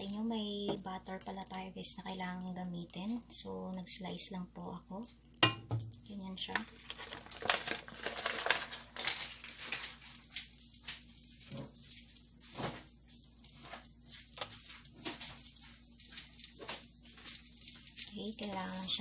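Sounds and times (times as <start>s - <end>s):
butter sizzling in a frying pan: 5.3s - 19.0s.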